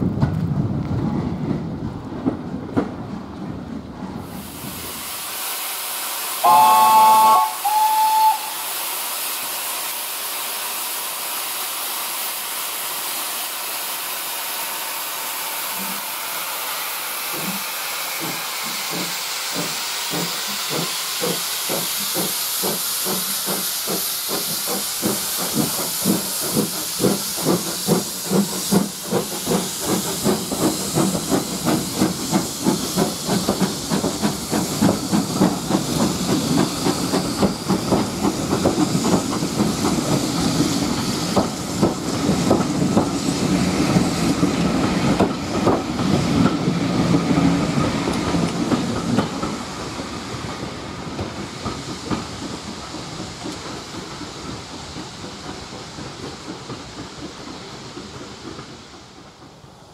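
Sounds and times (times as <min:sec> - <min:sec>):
steam locomotive hissing: 0:04.1 - 0:59.9
steam whistle blasts: 0:06.4 - 0:08.8.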